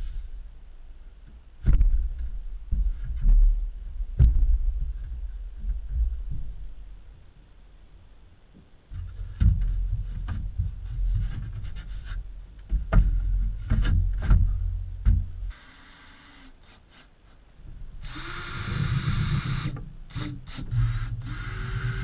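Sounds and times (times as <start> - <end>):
low rumble: 0.0 - 7.2.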